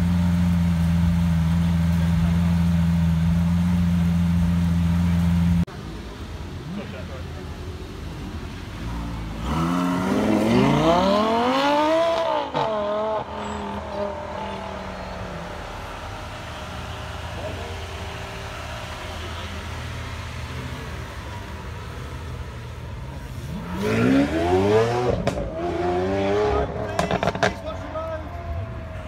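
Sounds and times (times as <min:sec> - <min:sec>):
sports car engine idling and revving: 0:00.0 - 0:29.0
sports car engine accelerating: 0:09.1 - 0:27.8.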